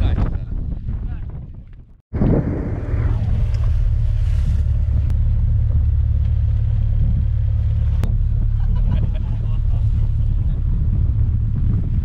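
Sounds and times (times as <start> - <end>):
boat engine rumbling: 2.1 - 12.0.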